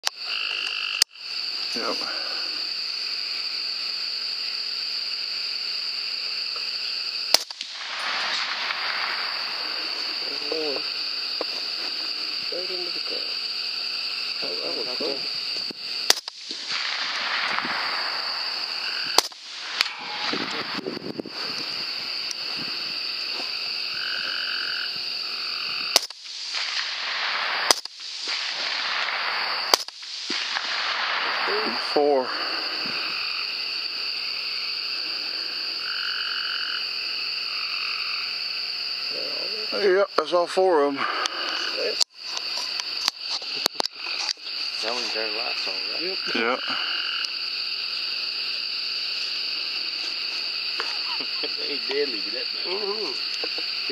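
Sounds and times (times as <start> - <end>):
frogs calling: 0.0 - 53.9
high-pitched night chorus: 0.0 - 53.9
rifle shot: 7.3 - 10.3, 16.0 - 21.0, 25.9 - 33.0.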